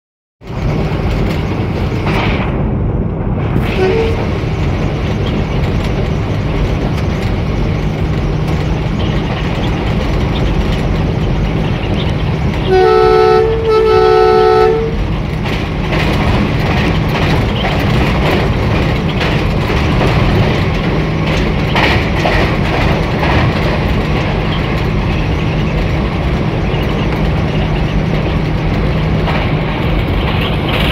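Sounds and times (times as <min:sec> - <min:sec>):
locomotive engine hum: 0:00.4 - 0:30.9
wheels clattering: 0:00.4 - 0:30.9
two-note train horn: 0:03.6 - 0:04.4, 0:12.6 - 0:15.0.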